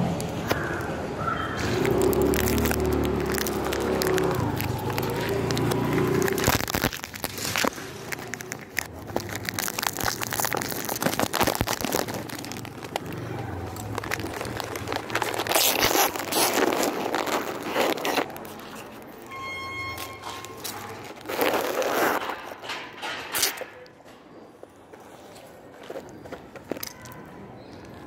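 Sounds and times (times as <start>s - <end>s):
biscuits being crushed by hand: 1.6s - 19.3s, 20.0s - 24.0s.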